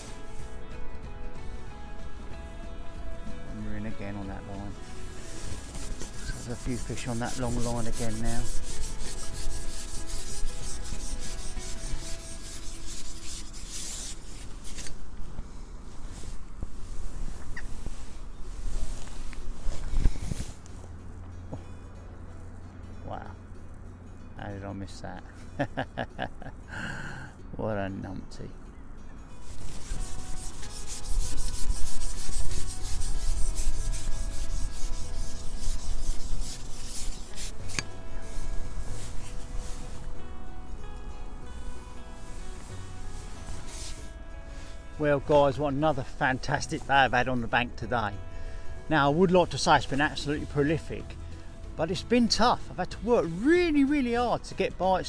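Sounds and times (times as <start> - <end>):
fabric rubbing on microphone: 0.0 - 0.6, 4.6 - 20.9, 29.4 - 40.2, 42.2 - 45.0
fishing pole scraping a jacket: 0.0 - 0.6, 4.5 - 20.9, 29.4 - 40.4, 42.1 - 47.2.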